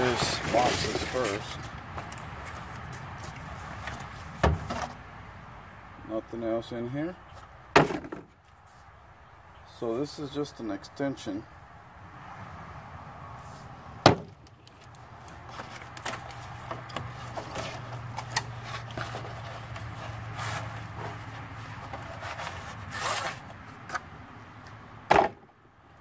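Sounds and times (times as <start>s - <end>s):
metal sliding from cardboard sleeve: 17.3s - 21.3s, 21.9s - 23.4s.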